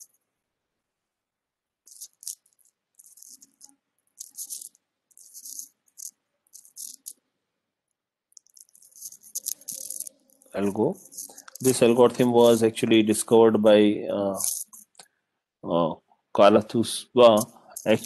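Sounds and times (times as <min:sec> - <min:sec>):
stylus scratching on tablet: 0:01.9 - 0:07.2, 0:08.4 - 0:13.4, 0:14.3 - 0:15.0, 0:17.2 - 0:18.0.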